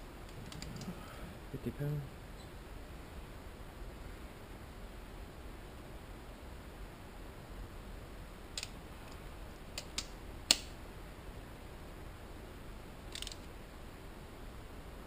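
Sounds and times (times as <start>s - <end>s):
hand tool clicking on metal: 9.8s - 10.7s, 13.1s - 13.4s.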